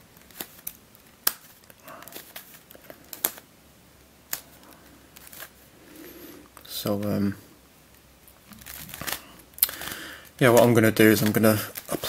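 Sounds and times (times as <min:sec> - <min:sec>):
plastic puzzle clicking as turned: 0:00.3 - 0:03.4.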